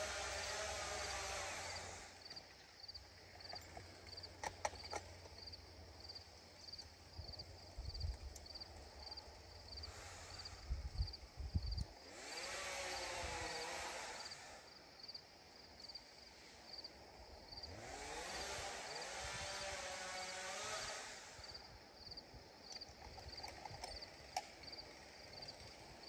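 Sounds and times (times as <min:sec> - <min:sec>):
insect chirping: 0:01.7 - 0:11.8, 0:13.5 - 0:17.7, 0:21.4 - 0:25.6.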